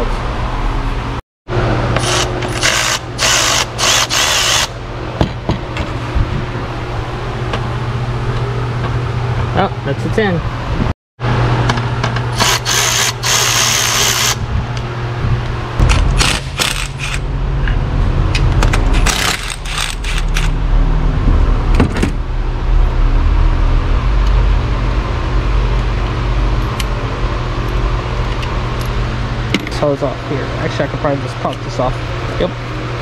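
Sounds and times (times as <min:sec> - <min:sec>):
steady low hum: 0:00.0 - 0:33.0
power ratchet spinning bolts: 0:02.0 - 0:04.8, 0:12.3 - 0:14.4, 0:15.8 - 0:17.2, 0:18.9 - 0:20.6.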